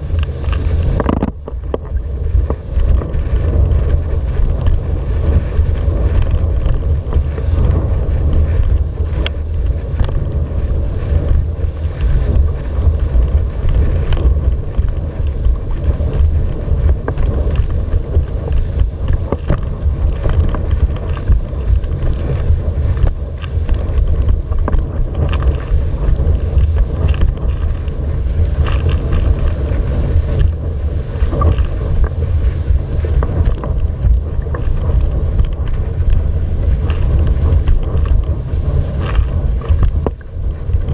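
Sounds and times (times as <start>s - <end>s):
water rushing under board: 0.0s - 40.9s
wind blowing across microphone: 0.0s - 40.9s.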